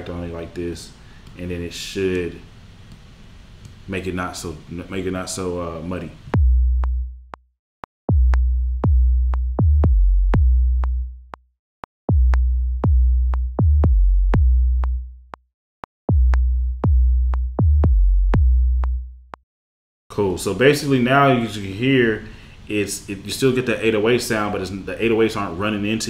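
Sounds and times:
deep sub-bass notes: 6.3 - 7.4, 8.1 - 11.4, 12.1 - 15.4, 16.1 - 19.4.

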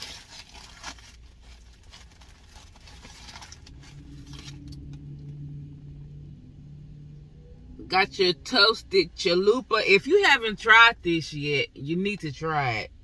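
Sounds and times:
paper packaging rustling: 0.0 - 4.8
low hum: 1.2 - 9.7.

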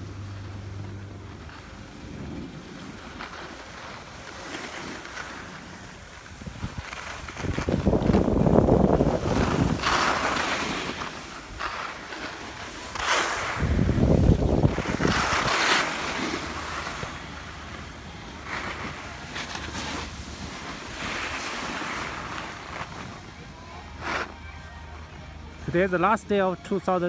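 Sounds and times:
snowboard scraping over snow: 0.0 - 24.7
wind buffeting microphone: 5.9 - 11.6, 13.4 - 17.3.

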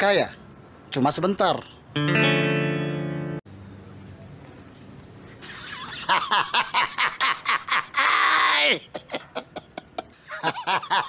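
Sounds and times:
man laughing heartily: 5.4 - 11.0
shrill shriek of laughter: 5.5 - 8.9.

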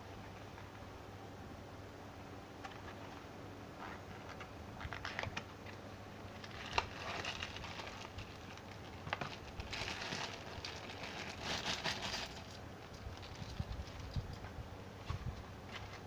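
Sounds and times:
plastic wrapping crinkling: 3.8 - 14.3.

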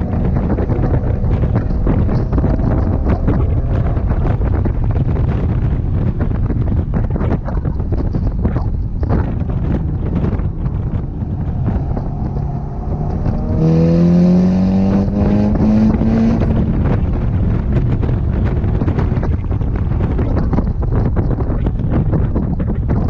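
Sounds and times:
car engine accelerating: 0.0 - 23.0
wind and road rumble: 0.0 - 23.0.

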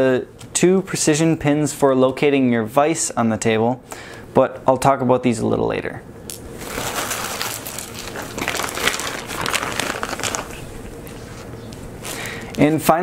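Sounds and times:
plastic bag crinkling: 6.4 - 12.8.

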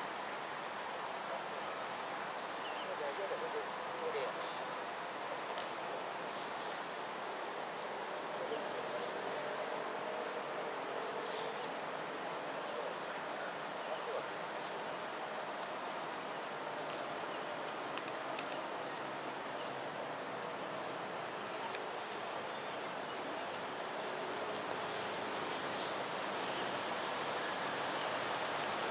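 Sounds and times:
dense background hum: 3.7 - 28.9
insects shrilling: 12.9 - 28.8.

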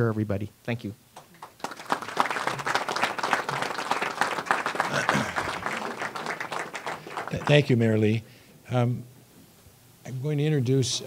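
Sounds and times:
audience applauding: 1.2 - 7.8.

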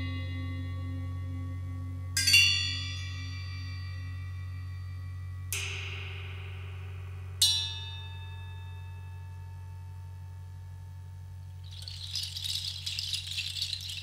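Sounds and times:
steady low hum: 0.0 - 14.0
ringing metal percussion strokes: 2.2 - 10.0, 11.7 - 14.0.

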